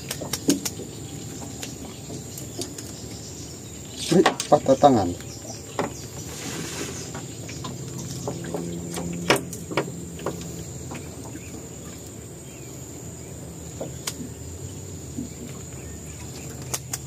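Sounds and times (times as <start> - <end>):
high insect drone: 0.0 - 17.0
low hum: 5.1 - 17.0.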